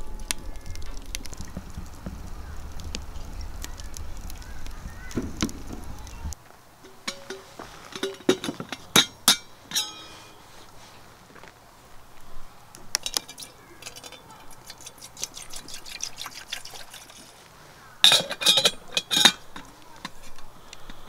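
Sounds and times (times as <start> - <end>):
metal kettle clinking: 6.8 - 10.4, 13.0 - 17.1, 18.0 - 20.2
water pouring into kettle: 13.0 - 17.3.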